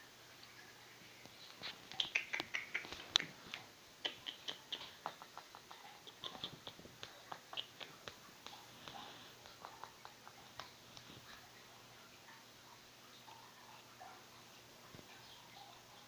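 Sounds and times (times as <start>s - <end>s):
rat gnawing food: 1.2s - 12.4s.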